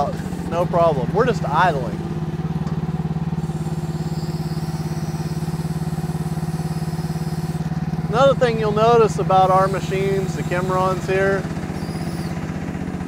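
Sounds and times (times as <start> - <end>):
small excavator engine idling: 0.0 - 13.0.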